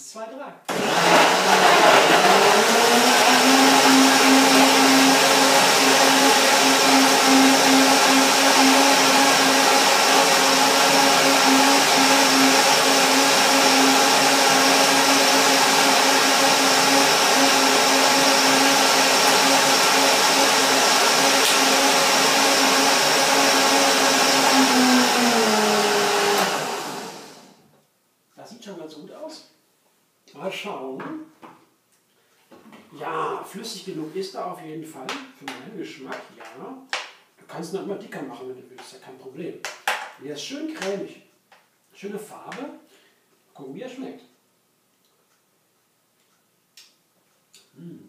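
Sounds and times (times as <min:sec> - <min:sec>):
blender motor whining: 0:00.7 - 0:27.6.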